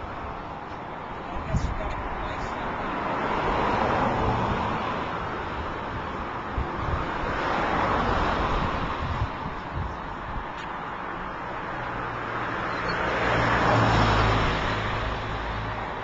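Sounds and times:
wind buffeting microphone: 0.0 - 12.2
outdoor rushing noise: 0.0 - 16.0.

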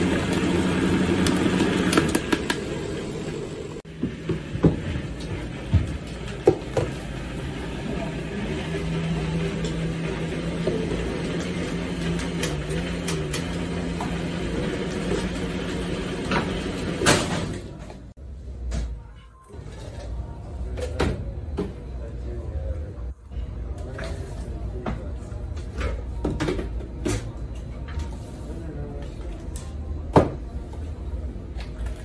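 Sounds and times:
blender motor running: 0.0 - 3.8, 6.6 - 17.1.

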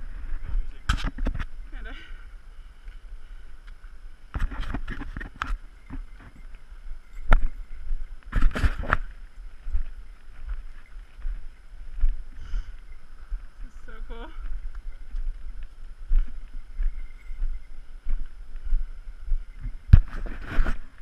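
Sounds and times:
boots and poles on rock: 3.7 - 6.6, 7.2 - 11.4, 19.6 - 21.0.

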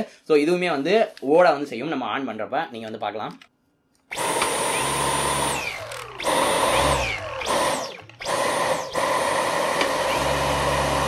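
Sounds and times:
stick vacuum high whine: 4.1 - 11.0.

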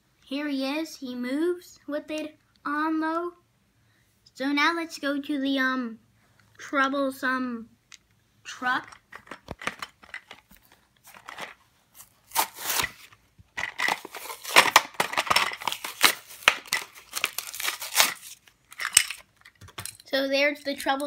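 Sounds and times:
cardboard packaging tearing: 12.0 - 13.2, 13.8 - 19.2.

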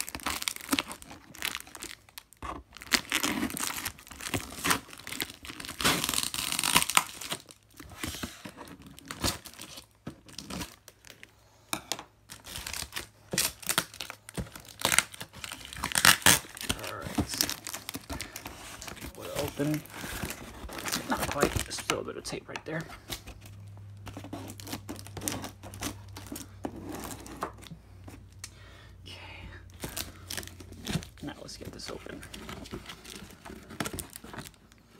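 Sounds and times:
packing tape peeling and tearing: 0.0 - 11.2, 12.3 - 27.7, 32.3 - 34.6
cardboard rustling and scraping: 12.5 - 28.2, 29.9 - 34.6.

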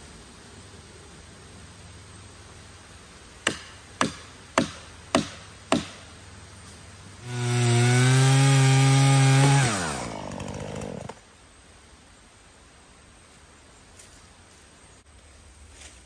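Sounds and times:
chainsaw cutting log: 7.2 - 11.2.

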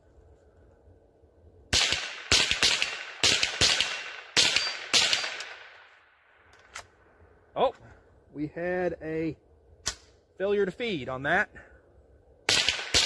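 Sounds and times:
rifle shots with echo: 1.7 - 6.1, 12.5 - 13.0.

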